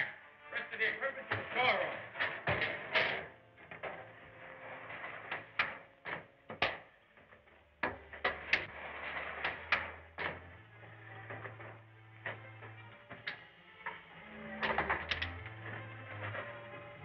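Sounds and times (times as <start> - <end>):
wooden cart knocking and clattering: 5.0 - 10.6.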